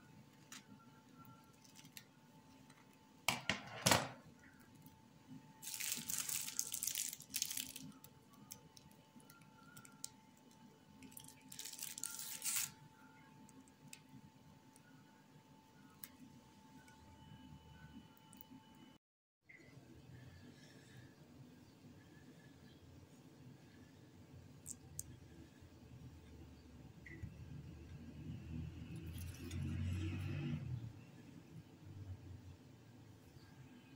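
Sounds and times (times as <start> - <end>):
plastic piping bag rustling: 0.4 - 3.0, 5.6 - 12.8.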